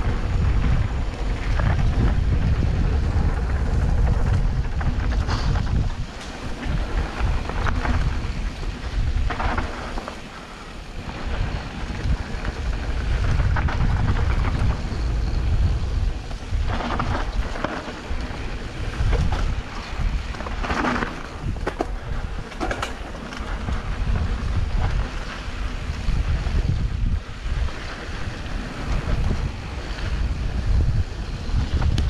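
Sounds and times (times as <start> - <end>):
tyres scraping on dirt: 0.0 - 26.6
bike tyres rolling on dirt: 0.0 - 32.0
wind buffeting microphone: 0.0 - 32.0.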